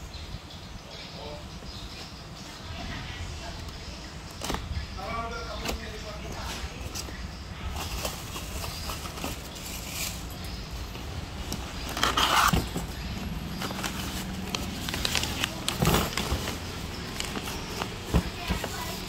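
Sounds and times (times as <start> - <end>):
cardboard and plastic rustling: 4.3 - 19.0.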